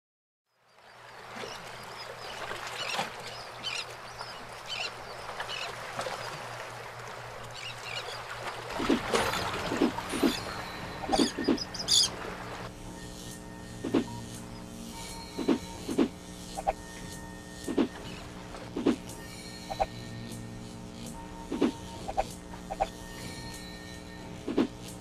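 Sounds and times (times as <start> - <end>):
outdoor noise: 0.5 - 25.0
birds chirping: 0.9 - 12.7
low steady hum: 3.4 - 25.0.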